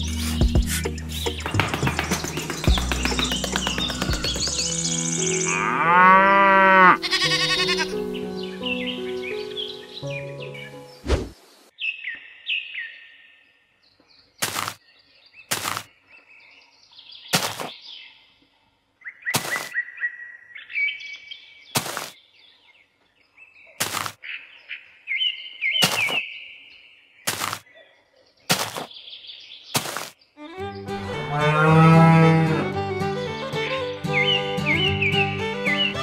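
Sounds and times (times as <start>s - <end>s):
small birds chirping: 0.0s - 31.1s, 33.6s - 36.0s
sharp taps: 1.3s - 4.8s.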